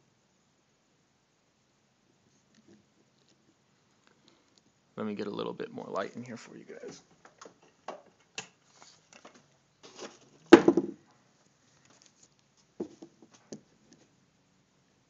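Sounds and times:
handling knocks and rustles: 0:06.8 - 0:11.0, 0:11.7 - 0:14.1.

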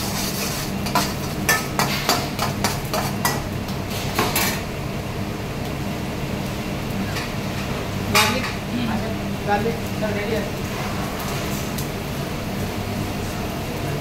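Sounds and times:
metal spoon scraping a frying pan: 0:00.0 - 0:03.4.

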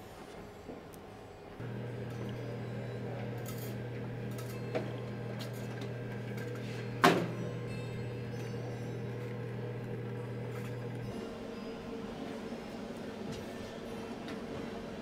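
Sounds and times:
steady low hum: 0:01.6 - 0:11.2.

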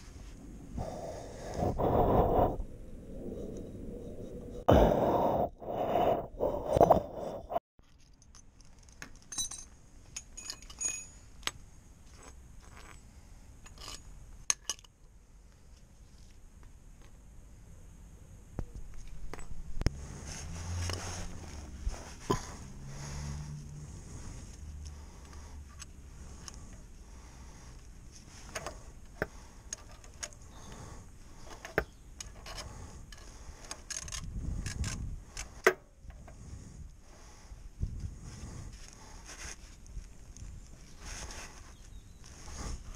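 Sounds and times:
metal tools clinking on brick: 0:09.1 - 0:11.3.

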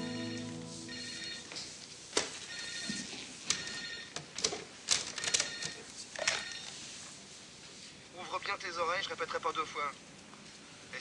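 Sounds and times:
electronic telephone ringer trilling: 0:00.0 - 0:01.5, 0:02.5 - 0:03.0, 0:03.6 - 0:04.1, 0:05.2 - 0:05.8.

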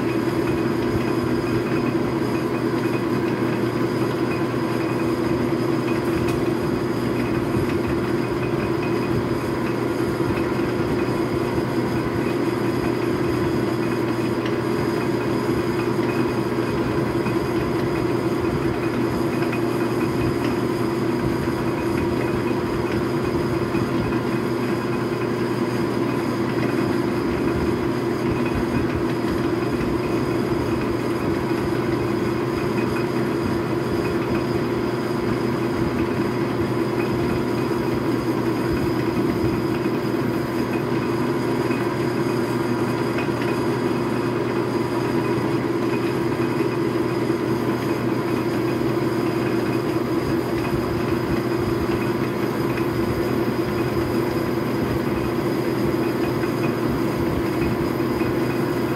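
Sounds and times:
metal lathe drone and clatter: 0:00.0 - 0:58.9.

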